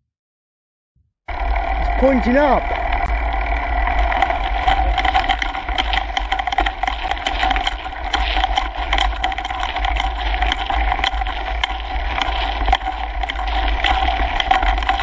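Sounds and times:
bike rattling and clicking: 1.3s - 15.0s
wind rumble on camera: 2.6s - 15.0s
tyres crunching over stones: 4.0s - 15.0s.

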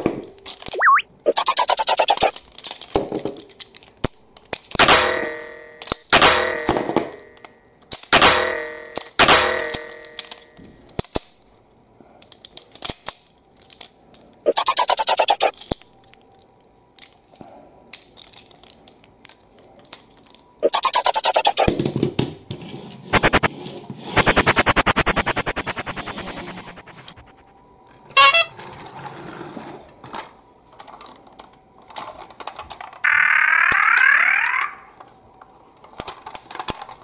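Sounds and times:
plastic toy blocks clicking: 0.0s - 0.8s, 1.4s - 4.8s, 7.1s - 8.2s, 12.2s - 21.8s, 30.2s - 33.1s, 35.8s - 37.0s.

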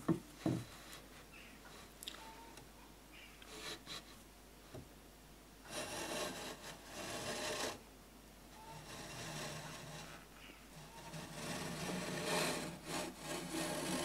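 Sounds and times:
hand plane shaving a board: 5.7s - 7.8s, 8.7s - 10.2s, 10.8s - 14.0s
light plane scrapes: 5.7s - 7.8s, 8.6s - 14.0s.

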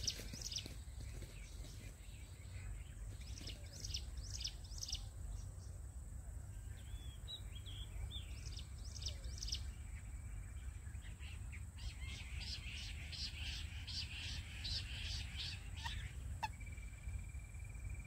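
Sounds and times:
soft bird chirps: 0.0s - 5.8s
quail calls: 12.0s - 16.6s.

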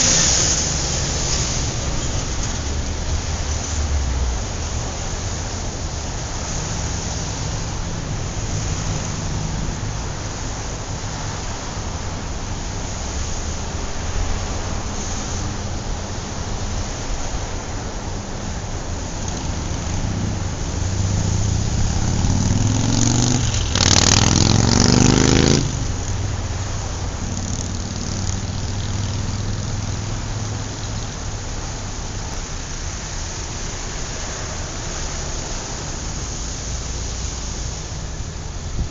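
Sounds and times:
motor traffic hum: 0.0s - 38.9s
wind noise: 0.0s - 38.9s
vehicle engine rising in pitch: 18.5s - 32.0s.

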